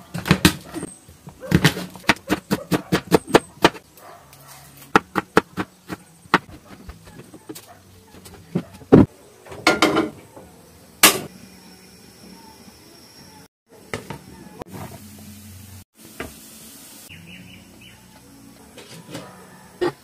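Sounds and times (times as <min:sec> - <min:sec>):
cookware knocking and clinking: 0:09.0 - 0:10.2.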